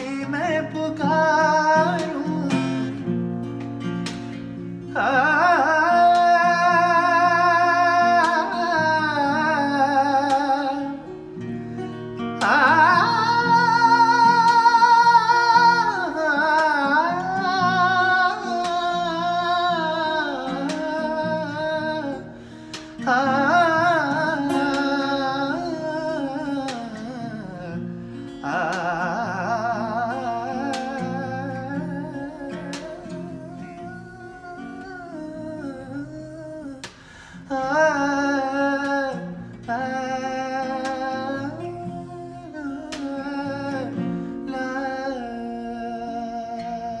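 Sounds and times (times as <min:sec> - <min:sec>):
acoustic guitar playing: 0:00.0 - 0:47.0.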